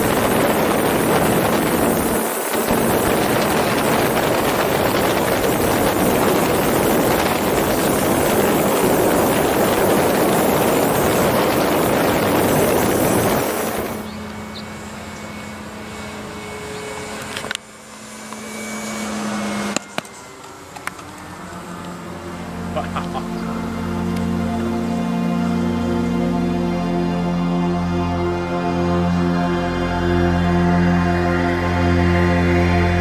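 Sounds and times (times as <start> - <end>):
rushing wind: 0.0 - 16.4
model plane engine humming: 0.0 - 33.0.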